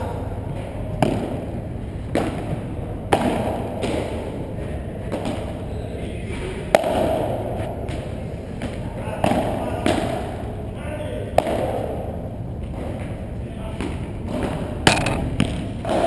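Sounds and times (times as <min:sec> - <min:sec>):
ball hitting padel rackets: 0:01.0 - 0:04.4, 0:05.1 - 0:05.6, 0:06.7 - 0:10.4, 0:13.8 - 0:16.0
ball bouncing on court: 0:14.3 - 0:16.0.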